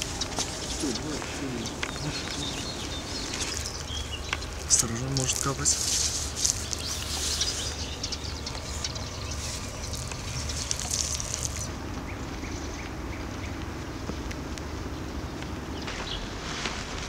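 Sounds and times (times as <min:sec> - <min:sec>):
paint roller wet crackle: 0:00.0 - 0:11.8
low steady hum: 0:00.0 - 0:17.0.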